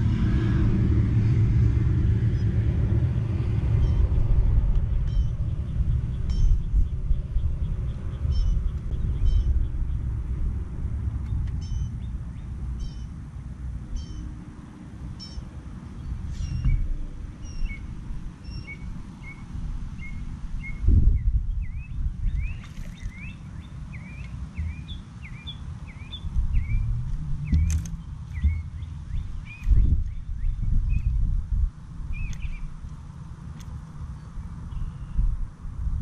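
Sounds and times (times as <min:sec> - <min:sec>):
wind rumble on microphone: 0:00.0 - 0:36.0
bird chirps: 0:03.8 - 0:04.1, 0:05.0 - 0:10.0, 0:11.3 - 0:13.2, 0:13.9 - 0:14.3, 0:15.2 - 0:31.2, 0:32.1 - 0:32.7, 0:34.2 - 0:35.2
birds calling: 0:04.9 - 0:10.2, 0:15.2 - 0:31.2, 0:32.1 - 0:33.0
low thump: 0:16.6 - 0:16.8.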